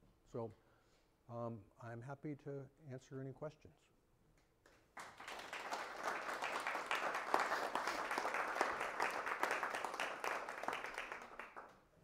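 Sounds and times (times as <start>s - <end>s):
audience applauding: 5.0s - 11.8s.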